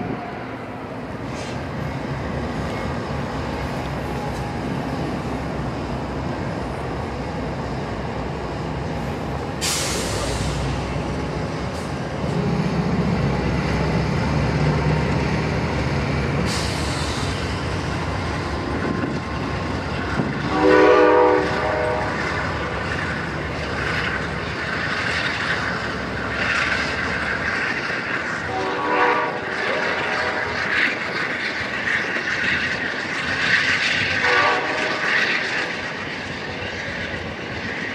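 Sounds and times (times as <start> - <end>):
diesel locomotive engine running: 0.0 - 37.9
air hiss: 9.6 - 10.8
locomotive horn: 20.4 - 22.5, 28.4 - 30.6, 34.2 - 35.2.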